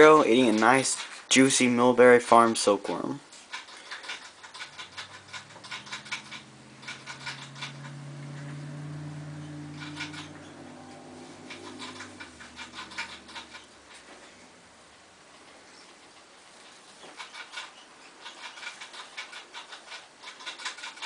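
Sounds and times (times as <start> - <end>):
light clicks and scratches: 0.0 - 21.0
low droning tone: 4.7 - 15.0.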